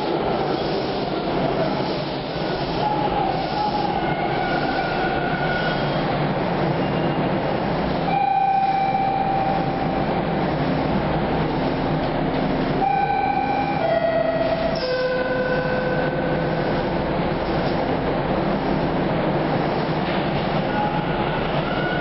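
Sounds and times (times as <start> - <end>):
subway train running hum: 0.0 - 22.0
train brakes squealing: 2.8 - 6.0.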